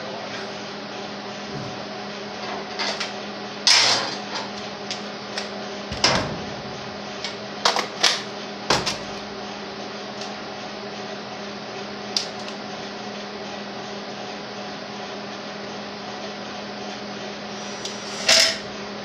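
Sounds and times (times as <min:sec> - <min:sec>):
steady low hum: 0:04.7 - 0:10.2, 0:17.4 - 0:19.0.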